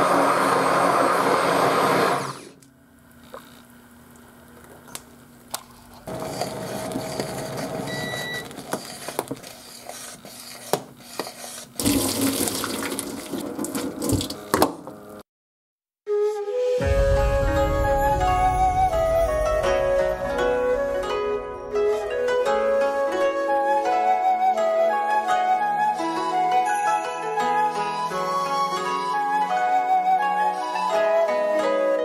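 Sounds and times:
immersion blender whirring: 0.0s - 2.6s, 5.8s - 14.0s.

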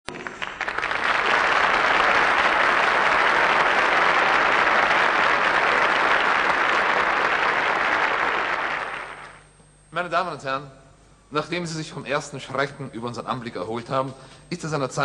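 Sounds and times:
audience applauding: 0.1s - 9.4s.

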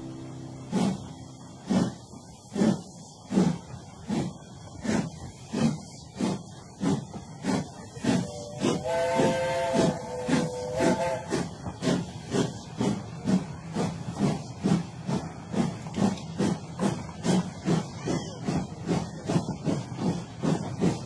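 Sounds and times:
steam locomotive chuffing: 0.0s - 21.0s
multi-tone steam whistle: 8.1s - 11.6s.

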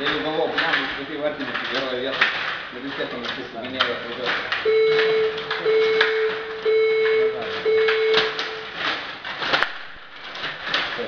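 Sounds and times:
table hockey game clatter: 0.0s - 11.0s
electronic beeps: 4.7s - 8.9s.

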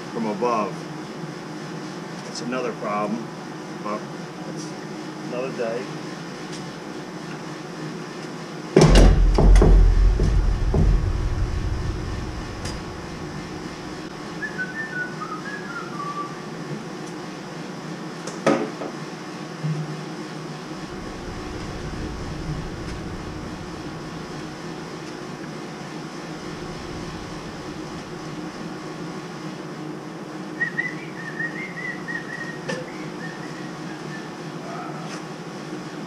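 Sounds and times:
sharp knock: 8.8s - 14.1s
steady low hum: 8.8s - 14.6s, 20.5s - 30.3s.

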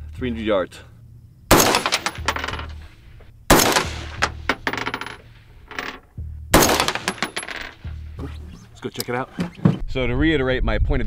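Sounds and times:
rifle shots: 1.5s - 2.7s, 3.5s - 4.7s, 6.5s - 7.7s.

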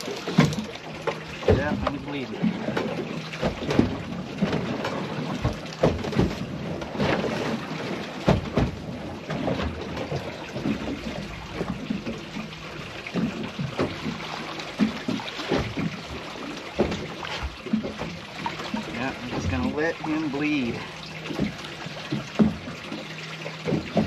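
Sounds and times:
low rumbling wash: 0.0s - 24.0s
water splashing: 0.0s - 24.0s
knocks against boat side: 0.3s - 7.3s, 8.2s - 9.8s, 21.3s - 22.8s, 23.6s - 24.0s.

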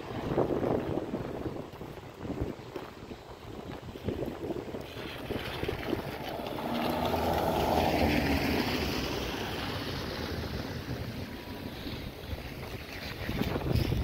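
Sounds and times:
car passing on wet road: 4.8s - 14.0s.

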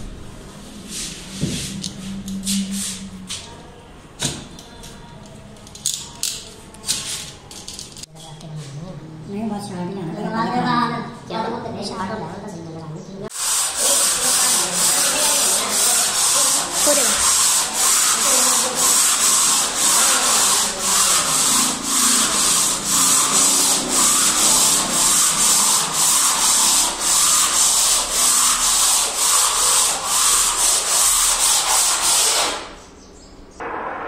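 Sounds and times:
sanding pad rubbing stone: 13.3s - 32.7s.

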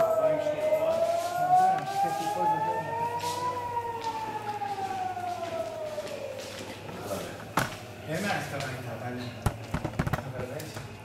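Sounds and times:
air-raid siren wailing: 0.0s - 7.6s.

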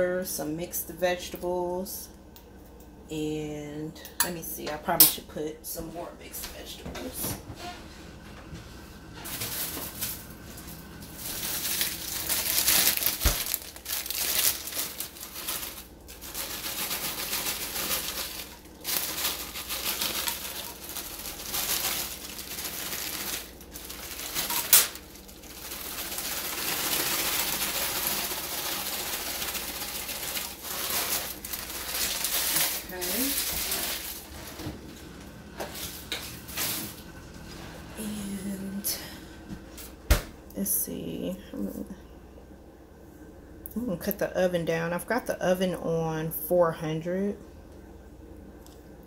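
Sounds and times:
plastic bag crinkling: 9.2s - 34.7s
frozen pieces dropping into dish: 9.3s - 34.4s.

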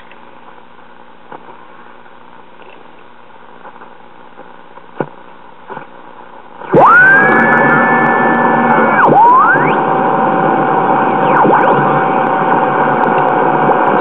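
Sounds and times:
radio static with crackles: 0.0s - 14.0s
loud rising squeal: 6.7s - 13.6s.

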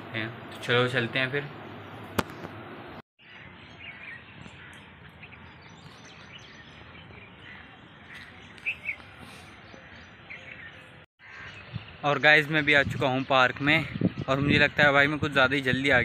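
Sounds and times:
steady outdoor hiss: 0.0s - 16.0s
birds chirping: 0.2s - 16.0s
sharp click: 2.2s - 2.6s.

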